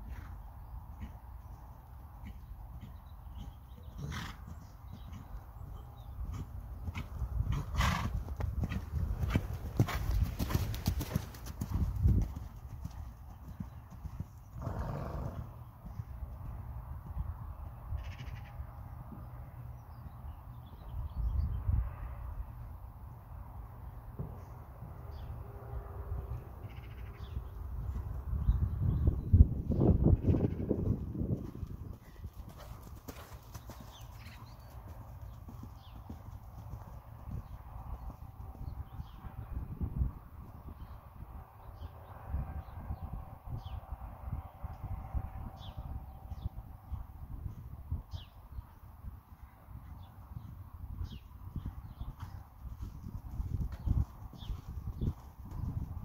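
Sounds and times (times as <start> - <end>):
horse hoofbeats on sand: 0.0 - 17.8, 30.6 - 39.2, 49.3 - 56.0.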